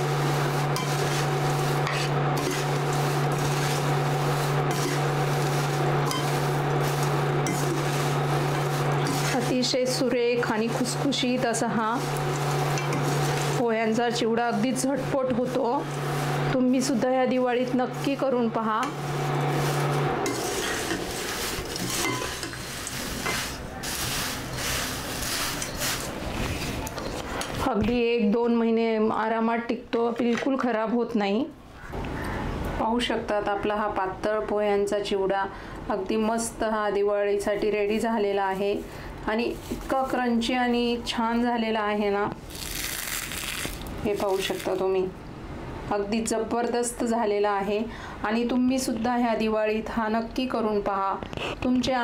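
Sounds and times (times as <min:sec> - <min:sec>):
spatula stirring dry snack in pan: 0:00.0 - 0:10.0, 0:10.8 - 0:13.6, 0:19.2 - 0:27.4.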